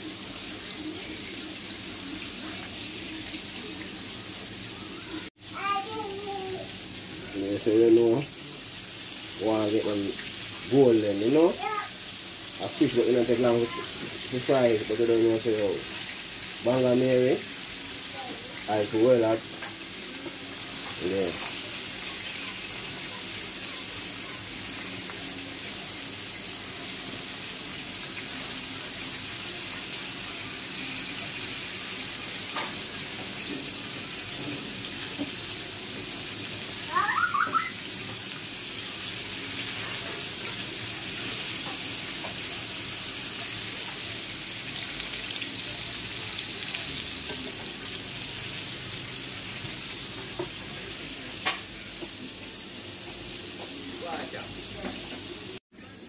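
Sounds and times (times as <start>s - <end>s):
fish sizzling in oil: 0.0s - 56.0s
high chirps: 36.9s - 37.8s.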